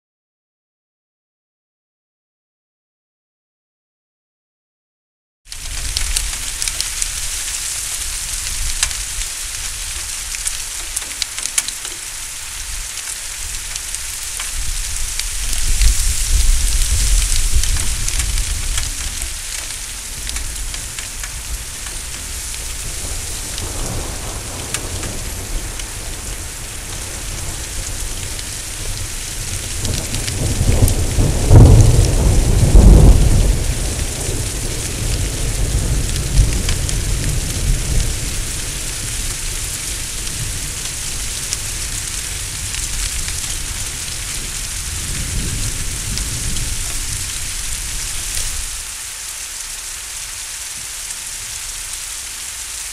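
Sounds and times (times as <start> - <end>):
heavy rain falling: 5.5 - 52.9
deep rolling thunder: 14.6 - 48.8.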